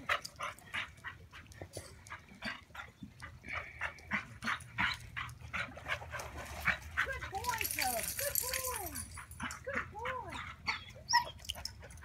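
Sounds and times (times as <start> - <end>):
dog yipping and whining: 10.4 - 11.6.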